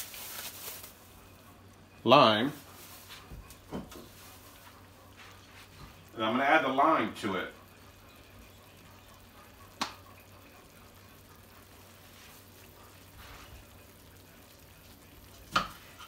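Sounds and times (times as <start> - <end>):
broth simmering in a skillet: 0.0 - 16.0.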